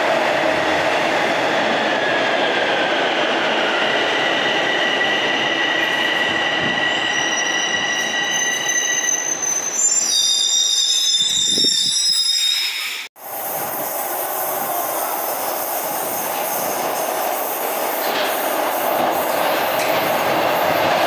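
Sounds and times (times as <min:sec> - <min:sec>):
subway train rumble: 0:00.0 - 0:10.0, 0:12.8 - 0:21.0
high-pitched brake squeals: 0:03.8 - 0:13.1.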